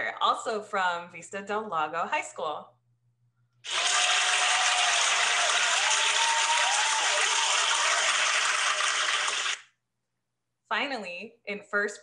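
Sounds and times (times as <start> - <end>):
crowd applause: 3.7 - 9.6.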